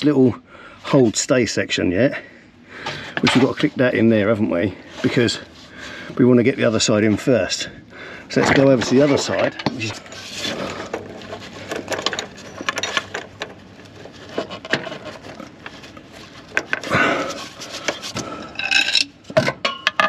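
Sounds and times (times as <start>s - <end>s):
cable scraping against metal: 8.3s - 19.1s.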